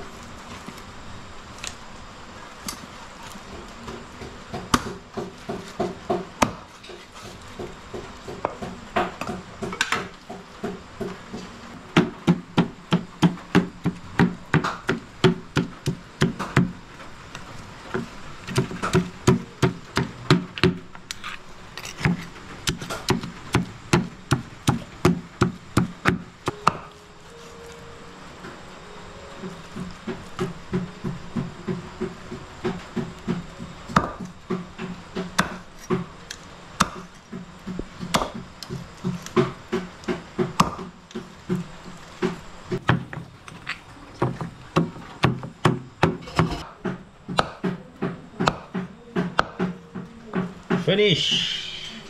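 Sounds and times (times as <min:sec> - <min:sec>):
cleaver chopping on wooden board: 0:21.8 - 0:26.9, 0:29.8 - 0:36.1, 0:36.8 - 0:43.2, 0:44.8 - 0:49.8.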